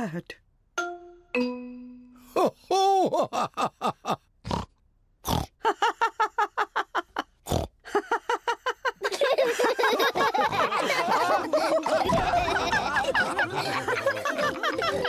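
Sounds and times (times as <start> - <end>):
cartoon pig snorting: 4.4 - 5.6, 7.4 - 7.8.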